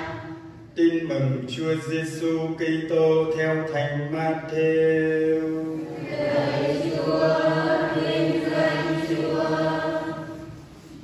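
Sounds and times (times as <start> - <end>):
choir singing a chant: 0.0 - 0.5, 5.6 - 10.6.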